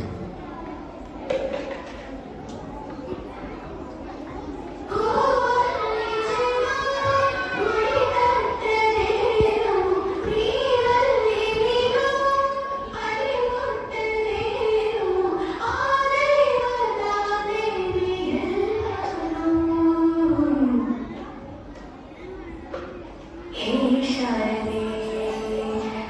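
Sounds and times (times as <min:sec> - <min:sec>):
high singing voice: 0:04.9 - 0:21.1.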